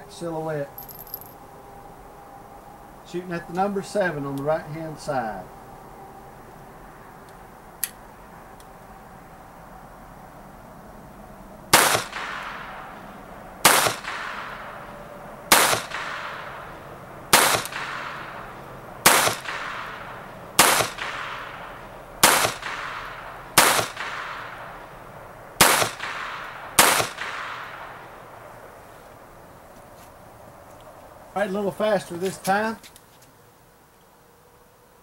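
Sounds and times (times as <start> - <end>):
pistol shots with echo: 11.7 - 25.0, 25.6 - 28.2.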